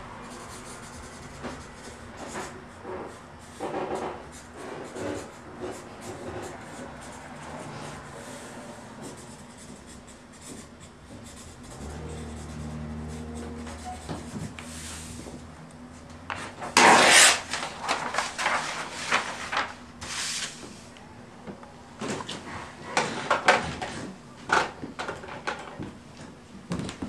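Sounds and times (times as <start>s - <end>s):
marker pen scratching on paper: 0.2s - 15.4s
paper scraping across wooden floor: 16.8s - 20.8s.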